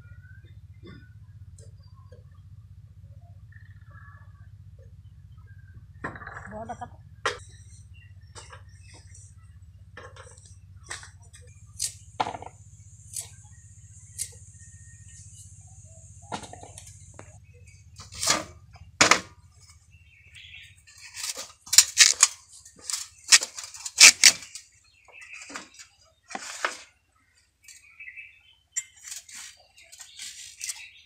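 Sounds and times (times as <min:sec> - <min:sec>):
blade crunching through corm: 0:21.1 - 0:24.6.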